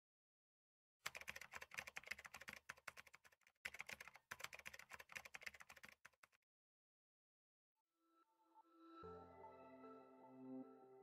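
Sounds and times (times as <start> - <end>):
keyboard typing clicks: 1.1 - 6.4.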